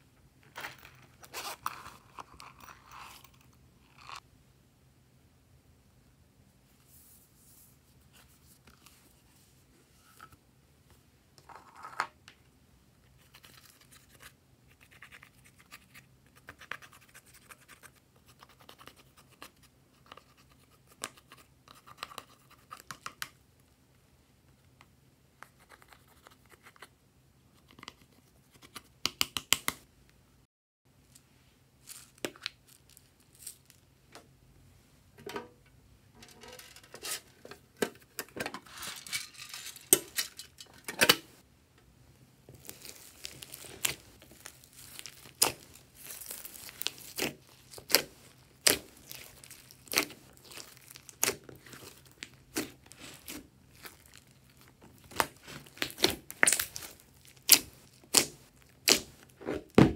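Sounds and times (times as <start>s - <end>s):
eyeshadow scratching and crumbling: 0.5s - 4.2s, 42.6s - 59.8s.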